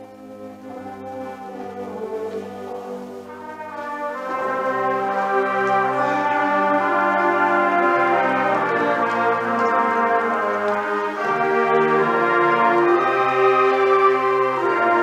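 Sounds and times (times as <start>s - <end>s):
concert band sustained chords: 0.0s - 15.0s.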